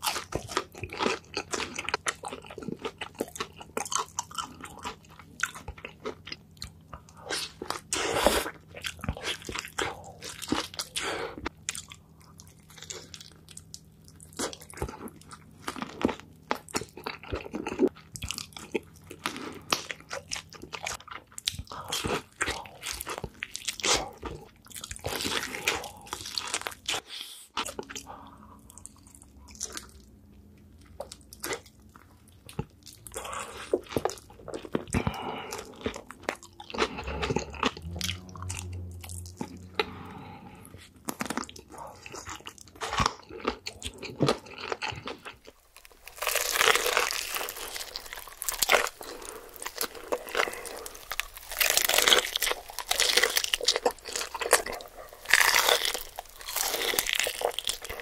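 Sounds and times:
wet chewing: 0.0s - 58.0s
crunchy bites of fried chicken: 41.0s - 58.0s.

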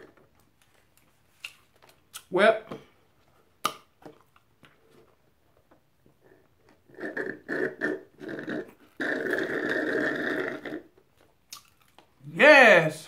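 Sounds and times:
slurping through a straw: 6.2s - 11.9s.

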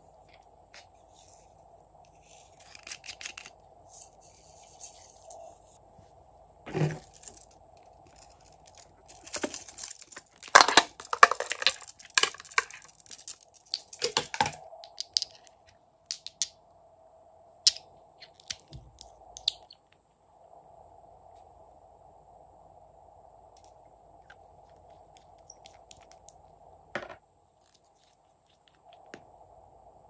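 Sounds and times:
crackling crinkling handling noise: 6.7s - 15.6s
glass bottles clicking: 9.4s - 15.4s.

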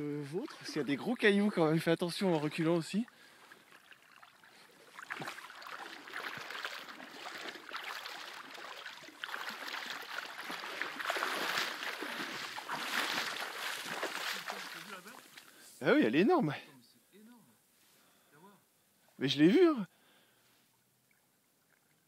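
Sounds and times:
water splashing from wading: 0.0s - 15.6s.

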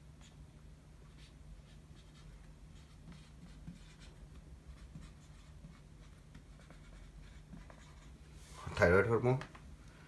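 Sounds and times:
marker writing on whiteboard: 0.2s - 0.4s, 1.0s - 8.2s.

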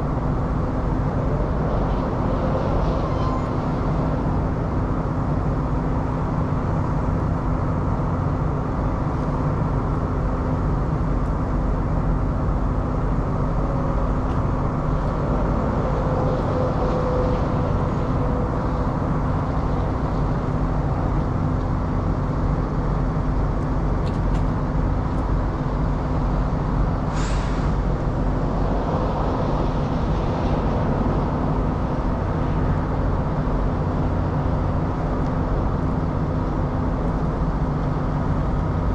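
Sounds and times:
brief high hiss: 27.1s - 27.8s.

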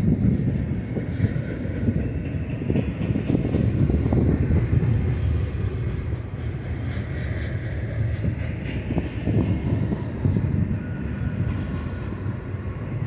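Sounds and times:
train wheels rumbling on rail: 0.0s - 13.0s.

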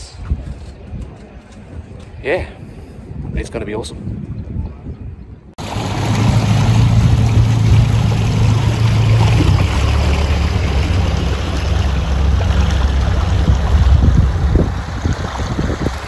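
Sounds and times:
motorboat engine droning: 5.6s - 16.0s
water rushing past hull: 5.6s - 16.0s.

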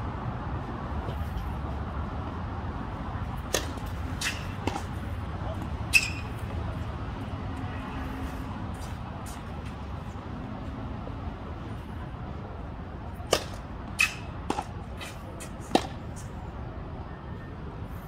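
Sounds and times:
tennis ball hits: 3.4s - 6.5s, 13.2s - 16.2s.

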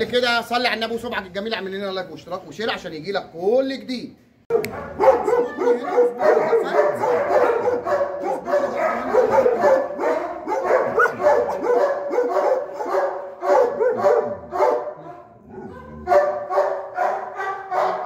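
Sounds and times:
dogs barking and whining: 4.5s - 18.0s.

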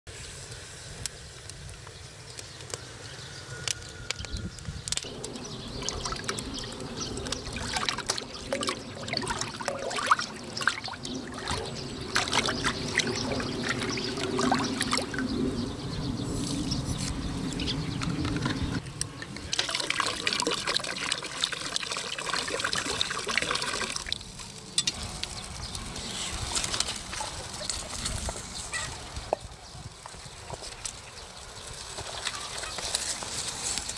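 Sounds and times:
steady pouring hiss: 0.1s - 3.2s, 5.0s - 15.4s, 18.8s - 33.9s
water sloshing and splashing: 5.1s - 15.4s, 18.3s - 24.4s.

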